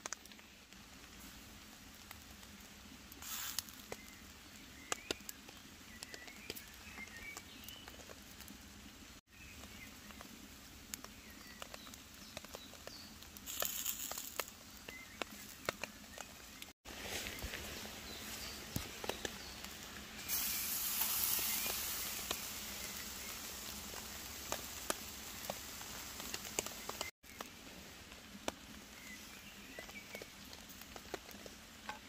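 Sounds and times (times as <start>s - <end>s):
fat spitting on hot coals: 1.1s - 8.7s, 10.9s - 27.1s
steak sizzling on a grill: 2.6s - 5.3s, 12.5s - 27.1s.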